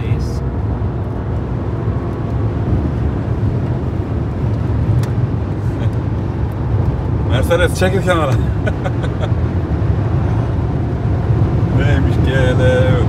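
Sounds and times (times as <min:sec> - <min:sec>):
car engine drone: 0:00.0 - 0:13.0
wind noise: 0:00.4 - 0:07.3.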